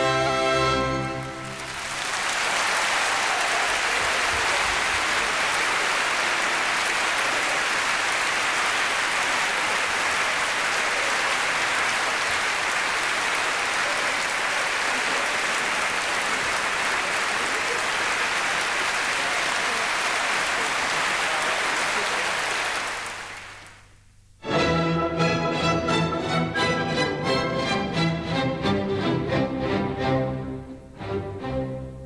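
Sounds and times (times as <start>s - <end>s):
audience applauding: 0.0s - 23.8s.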